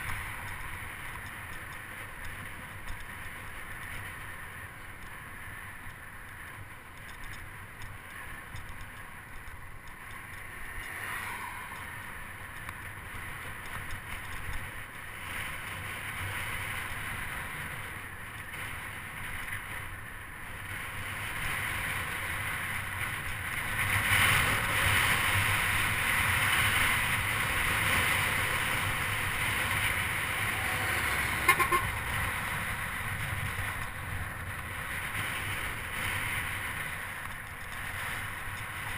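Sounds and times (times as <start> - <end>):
bicycle road rumble: 0.0 - 38.9.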